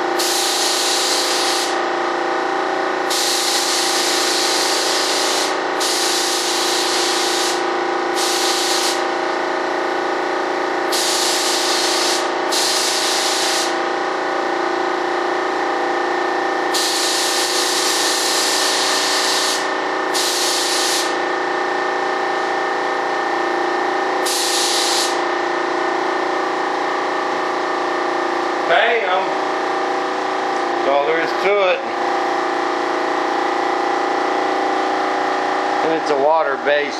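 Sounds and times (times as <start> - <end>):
steady hum: 0.0 - 36.9
spray gun hissing: 0.2 - 1.8, 3.1 - 7.6, 8.2 - 9.0, 10.9 - 13.8, 16.8 - 21.2, 24.2 - 25.2.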